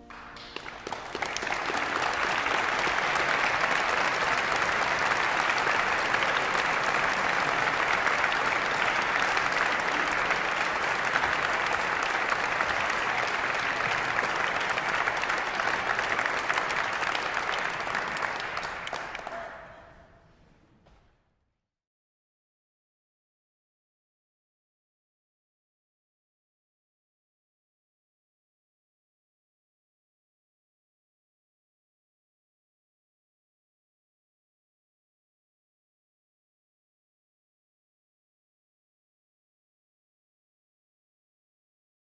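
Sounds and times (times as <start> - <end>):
audience applauding: 0.0 - 19.9.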